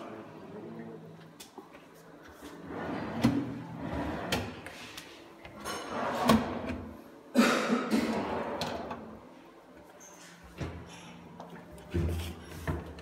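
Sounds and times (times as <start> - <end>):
drawers sliding and rattling: 2.6 - 5.0, 5.6 - 6.9, 8.1 - 9.2.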